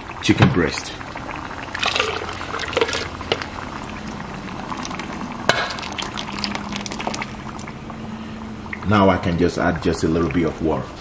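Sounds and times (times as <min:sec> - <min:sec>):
broth pouring and splashing: 0:01.0 - 0:08.8.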